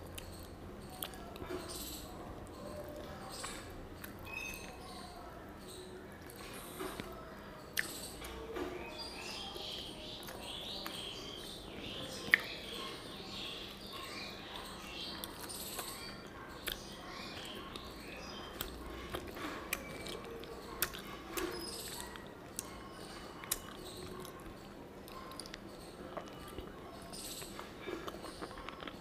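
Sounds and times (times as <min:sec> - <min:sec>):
person chewing: 0:15.2 - 0:17.9, 0:18.5 - 0:22.8, 0:23.4 - 0:26.8, 0:27.4 - 0:29.0.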